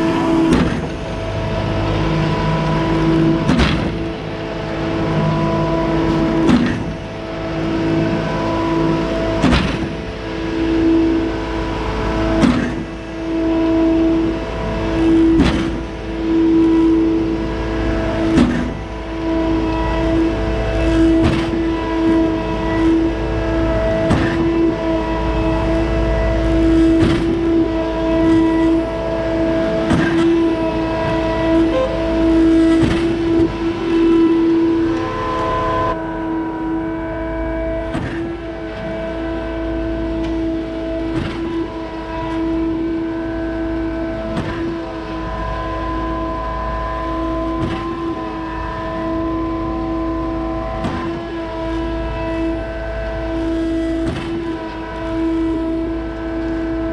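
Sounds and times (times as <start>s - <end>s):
pump truck engine whine: 0.0s - 56.9s
pump stroke clunk: 0.5s - 1.1s, 2.7s - 4.2s, 9.4s - 10.0s, 15.3s - 15.9s, 21.2s - 21.7s, 24.0s - 24.7s, 29.8s - 33.9s.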